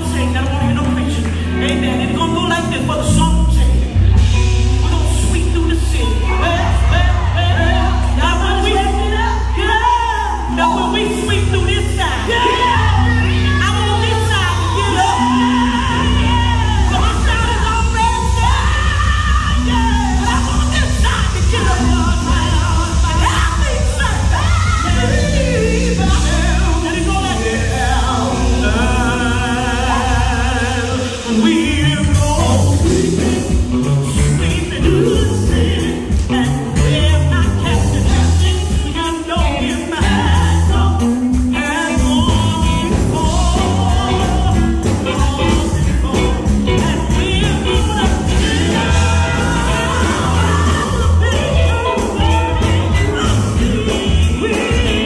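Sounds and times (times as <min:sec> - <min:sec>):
electric guitars: 0:00.0 - 0:55.0
women's vocal group singing: 0:12.1 - 0:31.5, 0:42.9 - 0:55.0.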